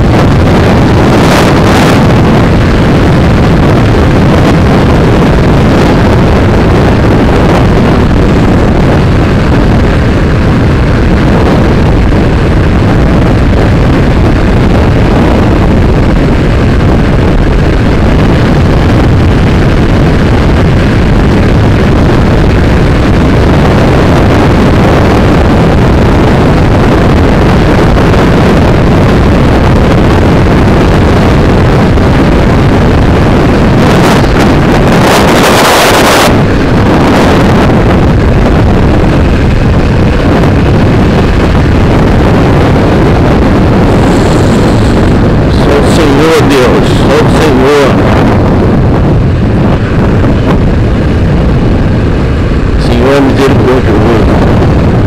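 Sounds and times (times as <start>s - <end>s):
road noise: 0.0s - 55.0s
wind rush over microphone: 0.0s - 55.0s
motorcycle engine: 30.9s - 45.8s.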